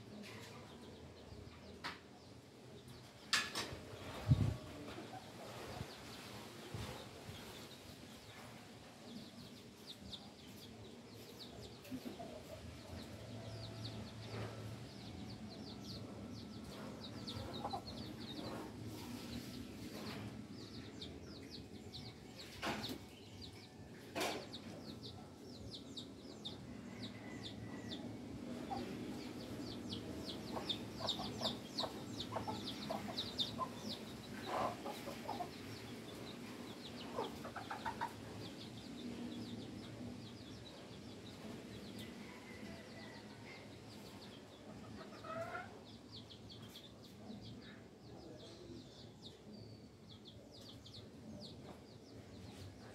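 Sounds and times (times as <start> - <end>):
small birds chirping: 0.1 - 52.9
chickens clucking: 9.3 - 47.6.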